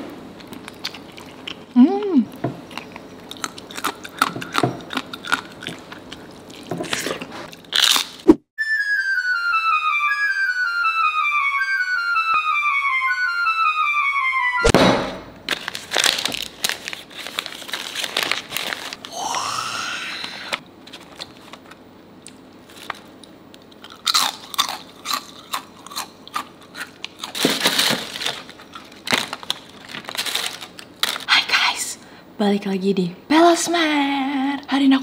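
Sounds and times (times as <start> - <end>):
crackers crunching: 0.3 - 8.4, 15.4 - 31.3.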